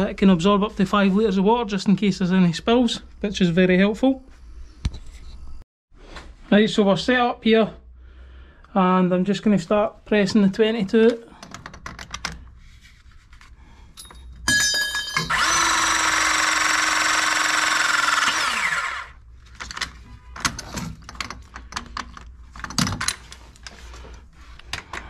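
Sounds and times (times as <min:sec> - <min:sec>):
clicks and knocks of handling: 0:11.0 - 0:12.5, 0:19.5 - 0:25.0
electric pressing tool motor: 0:15.3 - 0:19.2.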